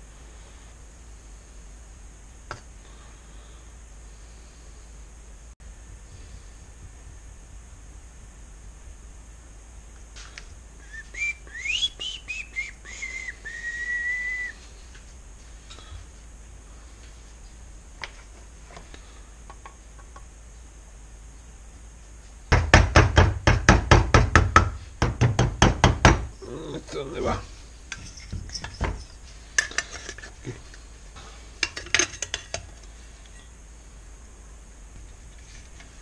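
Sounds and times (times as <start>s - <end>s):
metal engine parts tapped: 31.6s - 32.9s.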